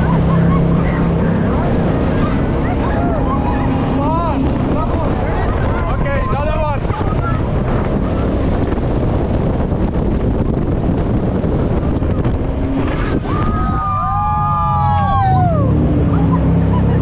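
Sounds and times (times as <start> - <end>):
boat engine: 0.0 - 17.0
rushing water: 0.0 - 17.0
wind buffeting microphone: 0.0 - 17.0
passengers screaming: 13.1 - 15.8.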